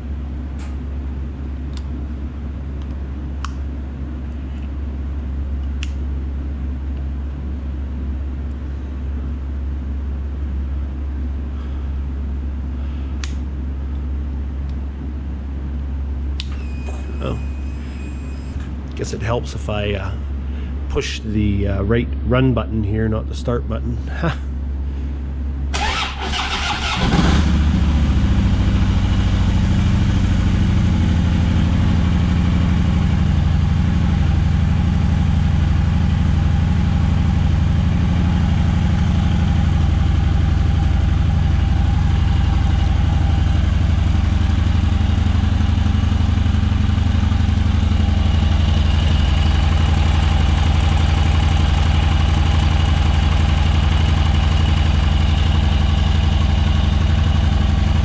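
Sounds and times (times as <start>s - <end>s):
motorcycle engine idling: 25.7s - 58.0s
motorcycle electric starter cranking: 25.8s - 27.5s.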